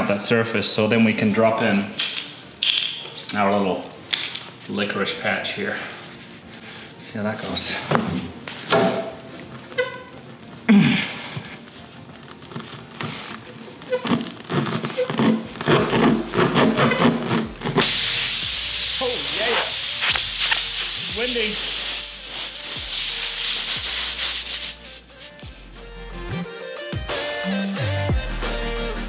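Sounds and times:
tyre reamer rasping: 12.4s - 18.0s
loud steady hiss: 17.8s - 25.5s.

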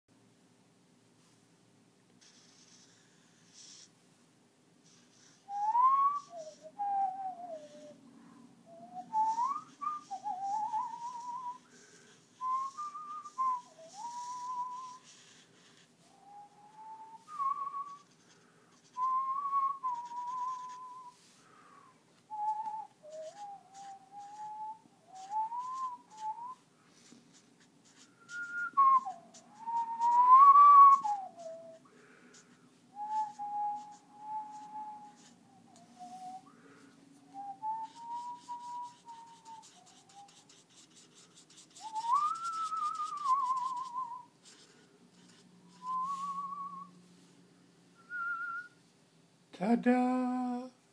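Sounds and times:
person whistling a tune: 5.4s - 8.0s, 8.7s - 15.4s, 16.2s - 18.3s, 18.9s - 21.2s, 21.8s - 26.6s, 28.2s - 31.9s, 33.0s - 36.6s, 37.3s - 40.4s, 41.1s - 44.7s, 45.7s - 47.0s, 48.0s - 48.8s.

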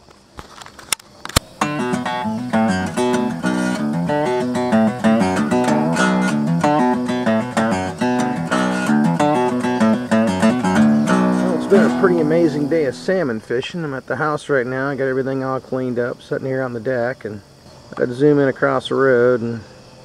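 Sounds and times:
acoustic guitar picked notes: 1.4s - 16.1s.

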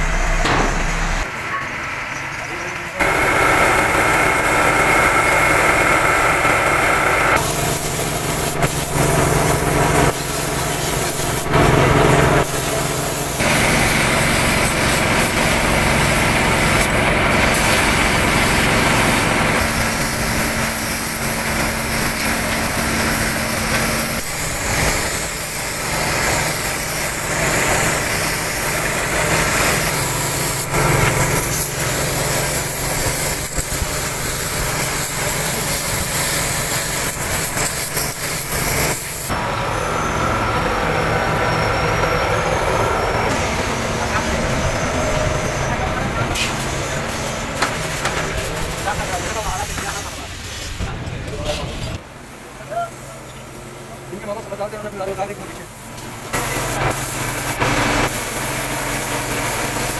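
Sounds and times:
motor drone: 0.0s - 1.3s, 2.4s - 47.7s
paint spray gun hissing: 3.0s - 39.4s, 43.3s - 50.8s, 55.0s - 59.9s.

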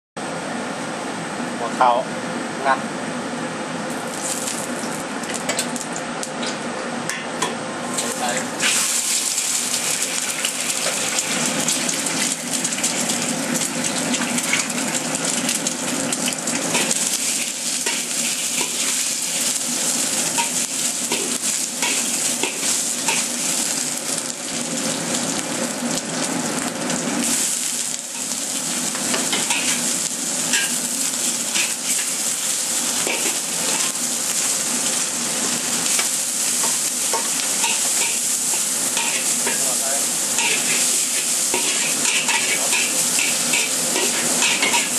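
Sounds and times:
egg sizzling in oil: 3.9s - 6.4s, 8.0s - 44.9s
spatula scraping a wok: 36.0s - 44.9s.

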